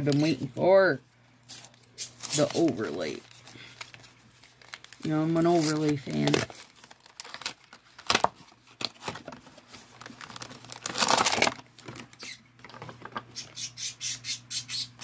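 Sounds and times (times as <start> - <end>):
packaging crinkling: 1.4 - 13.4
packaging tearing: 1.5 - 12.4.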